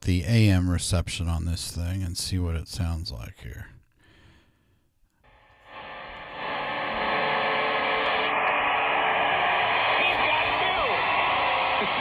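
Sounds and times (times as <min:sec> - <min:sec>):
radio static hiss: 0:05.3 - 0:12.0.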